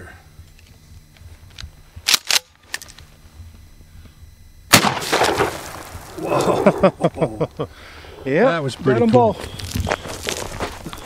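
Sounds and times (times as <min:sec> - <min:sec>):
shotgun shot with echo: 0:04.7 - 0:05.8.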